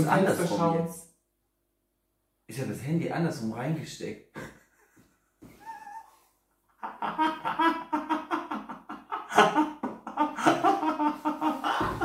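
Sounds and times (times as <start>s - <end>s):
people laughing heartily: 6.8s - 12.0s.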